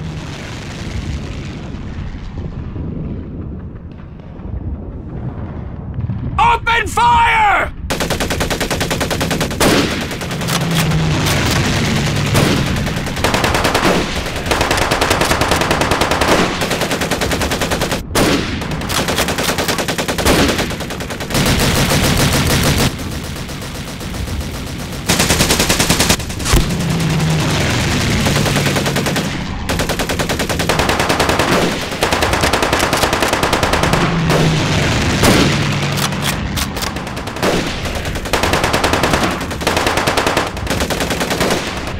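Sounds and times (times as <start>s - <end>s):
automatic gunfire bursts: 7.9s - 41.9s
single gunshots: 26.4s - 26.8s.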